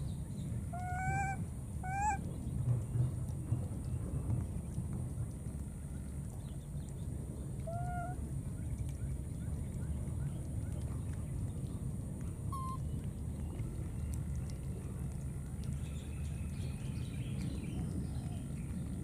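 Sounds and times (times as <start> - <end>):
steady low rumble: 0.0 - 19.0
short pitched animal calls: 0.7 - 2.2, 7.7 - 8.2.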